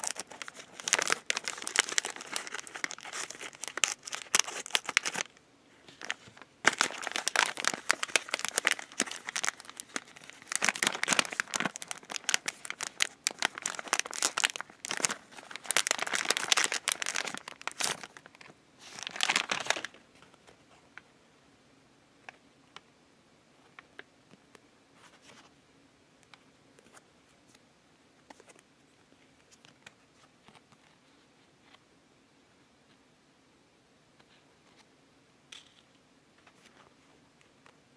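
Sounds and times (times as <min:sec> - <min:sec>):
plastic wrapper crinkling and tearing: 0:00.0 - 0:20.0.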